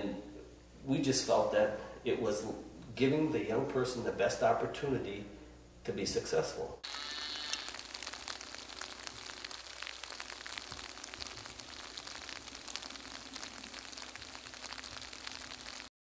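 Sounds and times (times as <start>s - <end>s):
light rain falling: 6.9s - 15.9s.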